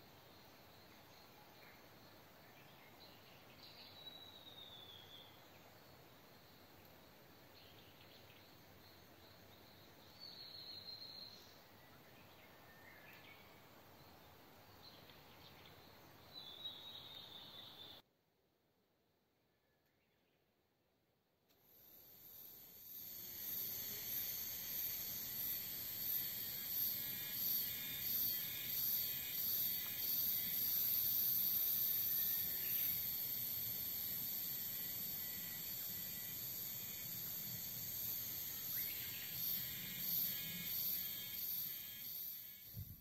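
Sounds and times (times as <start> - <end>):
insects shrilling: 21.6 - 43.0.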